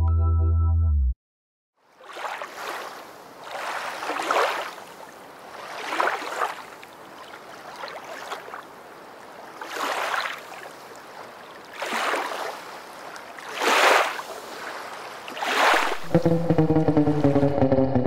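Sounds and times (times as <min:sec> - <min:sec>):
water splashing around paddleboard: 0:01.8 - 0:16.2.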